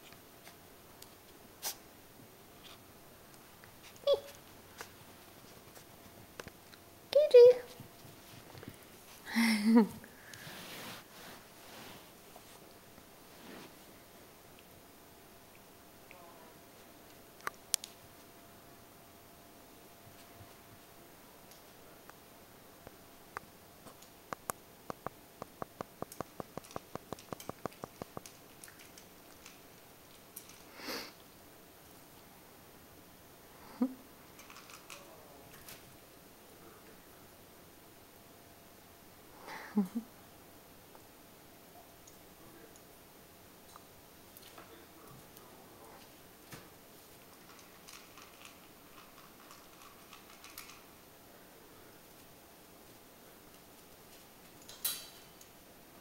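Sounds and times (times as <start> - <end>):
puppy crunching food: 23.9 - 30.7, 34.4 - 35.1, 47.2 - 50.9.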